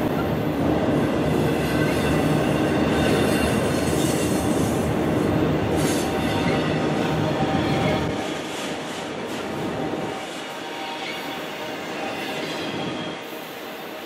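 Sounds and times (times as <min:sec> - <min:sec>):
train wheels rumbling on rail: 0:00.0 - 0:14.0
faint high wheel squeal: 0:10.5 - 0:13.4.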